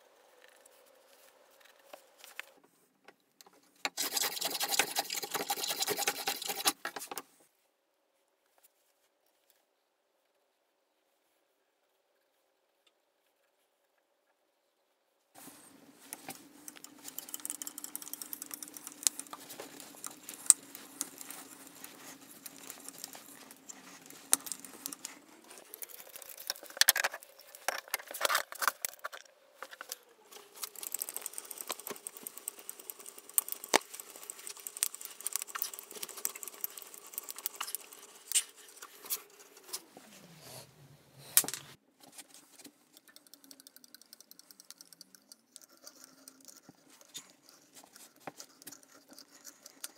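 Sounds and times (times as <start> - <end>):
hand tools clicking and scraping: 3.9 - 7.2, 16.1 - 39.9.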